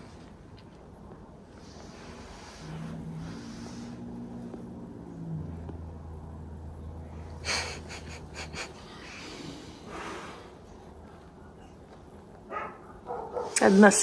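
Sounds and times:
cat hissing: 7.4s - 10.6s.

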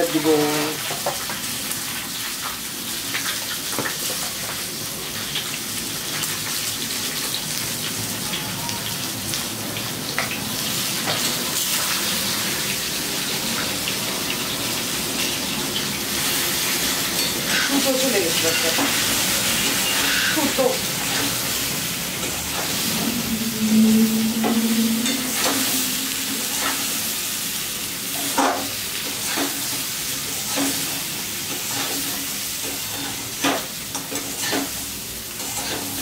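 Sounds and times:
vegetables sizzling in hot oil: 0.0s - 23.7s, 25.0s - 36.0s
metal spatula scraping pan: 22.5s - 27.0s.

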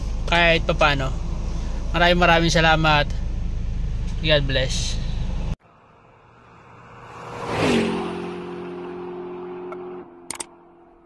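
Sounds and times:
in-cabin road noise: 0.0s - 11.0s
car speeding past on gravel: 6.4s - 10.1s.

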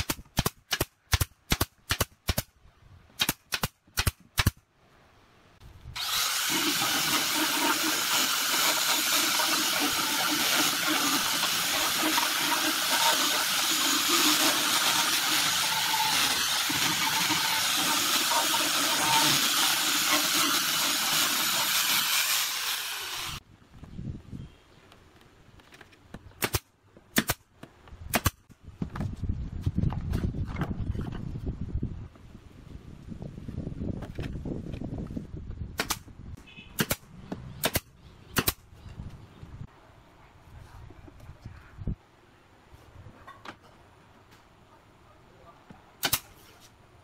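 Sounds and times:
nail gun firing into boards: 0.0s - 2.5s, 3.2s - 4.6s, 26.4s - 27.5s, 28.1s - 28.4s, 35.8s - 36.1s, 36.8s - 38.6s, 46.0s - 46.4s
angle grinder sanding wood: 6.0s - 23.4s.

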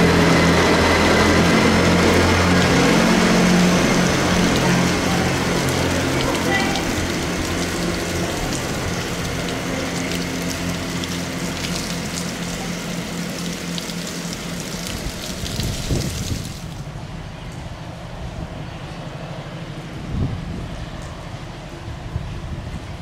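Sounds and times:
rain falling: 0.0s - 17.8s
diesel train engines: 0.0s - 23.0s.

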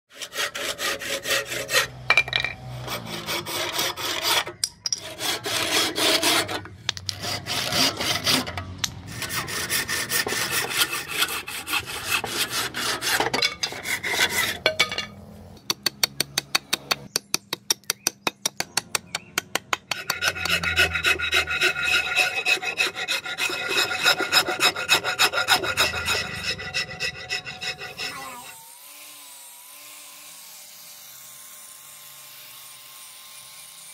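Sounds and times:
rasp filing wood: 0.1s - 2.0s, 2.6s - 14.8s, 19.8s - 28.6s
hand saw cutting wood: 0.1s - 17.1s, 19.7s - 33.9s.

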